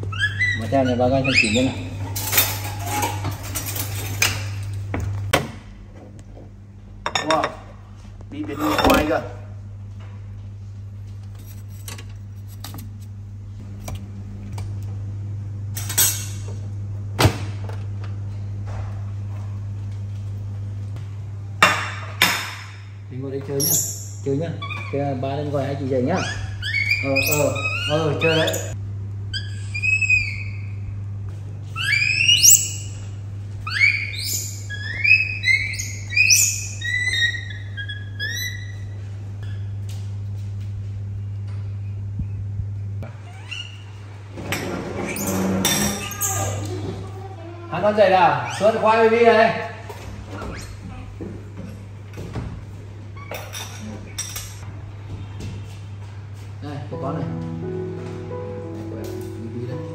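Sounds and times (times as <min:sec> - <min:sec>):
baby monkey squealing: 0:00.0 - 0:02.1, 0:23.6 - 0:25.0, 0:26.0 - 0:30.9, 0:31.7 - 0:33.0, 0:33.6 - 0:39.7, 0:43.2 - 0:43.9, 0:45.0 - 0:47.6, 0:48.4 - 0:48.9
steady low hum: 0:00.0 - 0:45.8.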